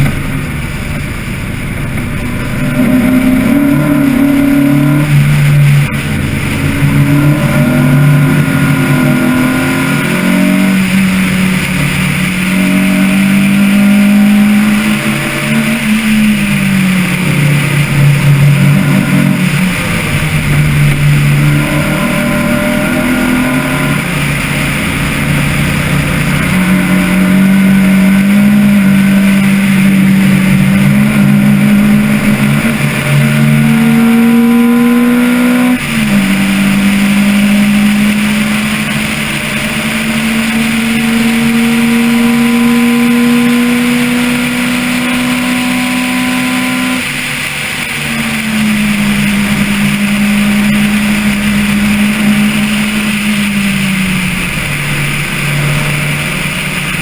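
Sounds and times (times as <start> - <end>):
car engine accelerating: 0.0 - 57.0.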